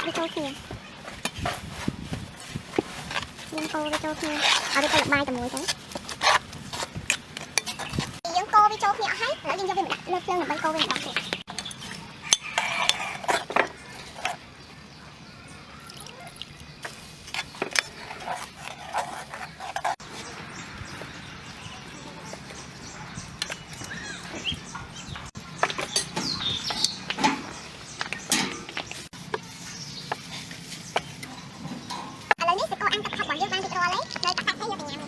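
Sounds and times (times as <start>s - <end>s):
birds chirping: 0.0s - 1.7s, 3.5s - 35.0s
utensils clinking on pots and plates: 10.7s - 14.4s, 25.6s - 28.9s, 31.2s - 32.4s.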